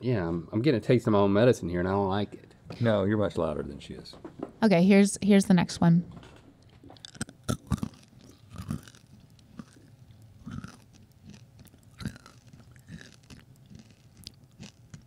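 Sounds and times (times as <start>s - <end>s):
person chewing crunchy candy: 6.9s - 15.0s.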